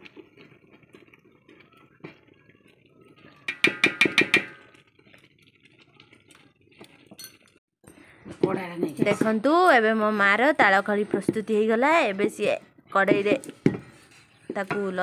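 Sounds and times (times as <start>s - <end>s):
stirring and handling: 0.0s - 15.0s
metal pot clinking: 3.4s - 7.6s, 8.9s - 15.0s.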